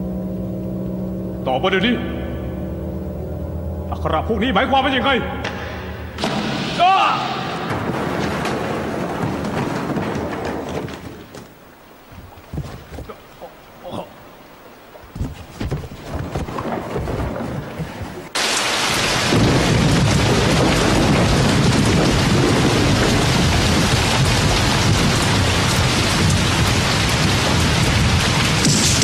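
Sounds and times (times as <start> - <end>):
heavy rain pouring: 6.1 - 29.0
soft knocks and rustles: 8.2 - 13.5, 14.9 - 18.2.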